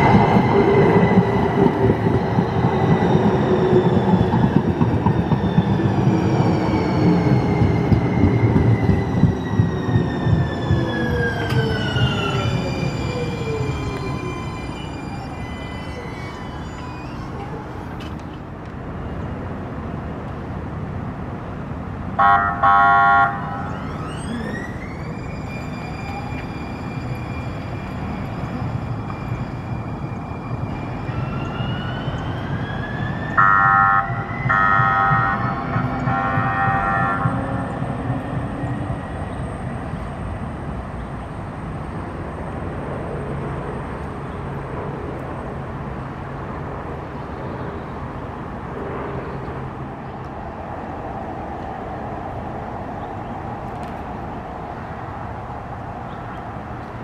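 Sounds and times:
traction motors whining: 5.0 - 18.4, 23.4 - 33.5
train horn blasts: 22.2 - 23.6, 33.4 - 37.4.

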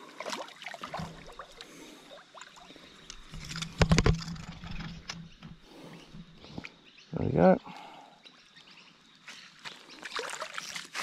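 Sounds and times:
fish splashing in water: 9.6 - 11.0.

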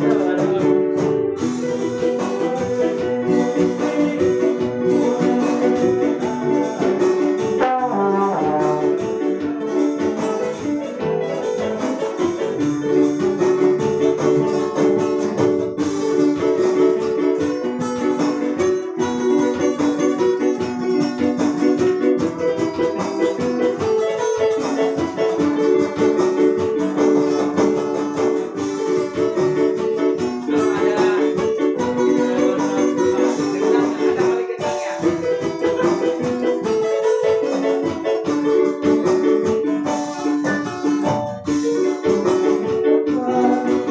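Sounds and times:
electronic keyboard: 0.0 - 43.9
strummed acoustic guitar: 0.0 - 43.9
trombone: 7.6 - 9.2.

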